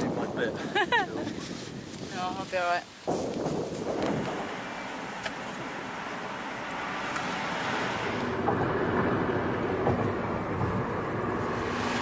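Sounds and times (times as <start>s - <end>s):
car road and engine noise: 0.0s - 12.0s
wind noise: 0.0s - 12.0s.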